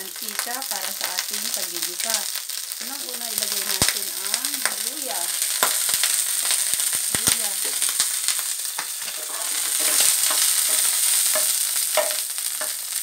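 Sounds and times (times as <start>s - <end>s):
ginger sizzling in oil: 0.0s - 13.0s
spoon scraping pan: 5.5s - 12.8s.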